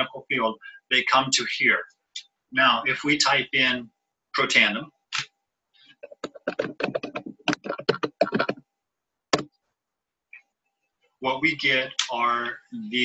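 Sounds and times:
typing on computer keyboard: 6.0 - 8.6.

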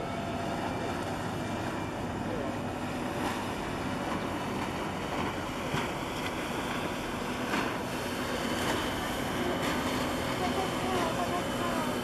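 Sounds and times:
motorboat passing: 0.0 - 12.0
waves lapping at shore: 0.0 - 12.0.

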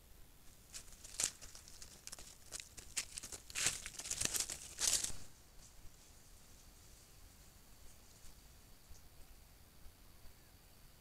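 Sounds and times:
dry leaves rustling and crackling: 0.4 - 6.2.

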